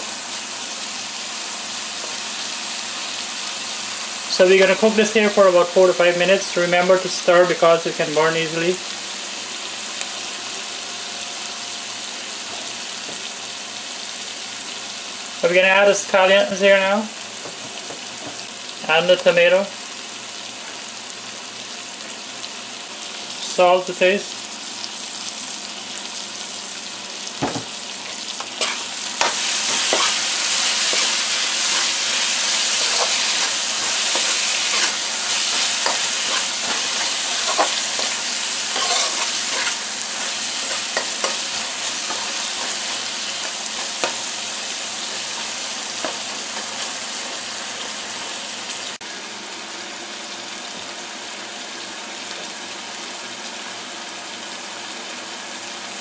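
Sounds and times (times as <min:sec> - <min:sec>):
curry paste sizzling in pan: 0:24.2 - 0:56.0
spoon stirring and scraping pan: 0:27.7 - 0:47.3.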